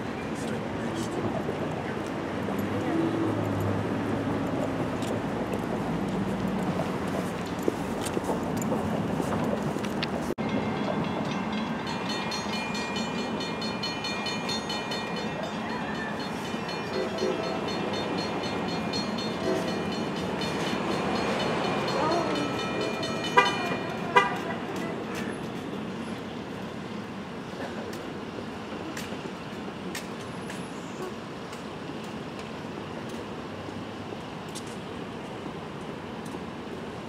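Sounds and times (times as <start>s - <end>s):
distant train horn: 15.7s - 17.8s, 19.2s - 20.0s, 21.9s - 24.8s.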